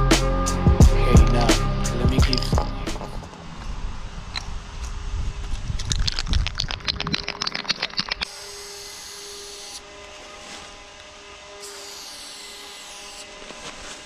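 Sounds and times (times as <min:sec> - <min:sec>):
music with a quick beat: 0:00.0 - 0:03.0.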